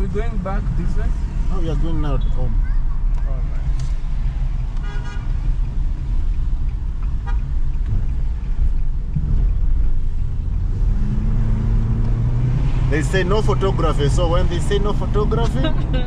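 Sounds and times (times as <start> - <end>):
road and engine rumble: 0.0 - 16.0
car horn toots: 4.8 - 5.4.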